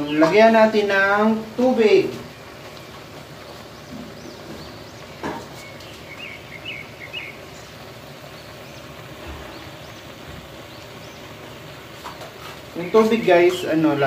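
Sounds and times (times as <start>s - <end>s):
steady background hiss: 0.0s - 14.0s
faint bird chirps: 2.2s - 11.4s.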